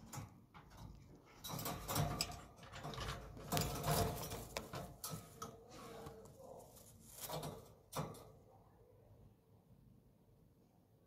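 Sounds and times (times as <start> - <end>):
wire cage rattling: 0.0 - 5.6, 7.0 - 8.4.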